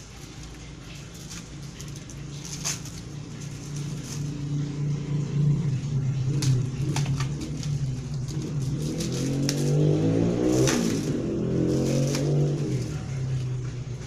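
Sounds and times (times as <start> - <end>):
plastic shrink-wrap crinkling: 0.0 - 4.4, 6.4 - 9.8, 10.4 - 13.0
engine humming: 0.0 - 14.0.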